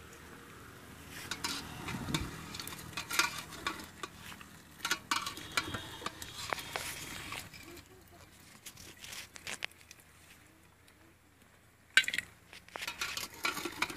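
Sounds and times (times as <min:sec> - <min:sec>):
pot bubbling: 0:00.0 - 0:08.4, 0:11.9 - 0:13.9
metal ladle scraping a pot: 0:01.1 - 0:07.9, 0:12.7 - 0:13.9.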